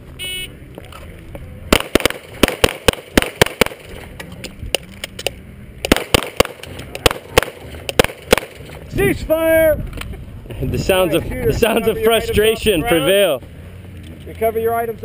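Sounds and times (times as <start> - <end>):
rapid pistol shots: 1.7 - 3.9, 5.8 - 8.6.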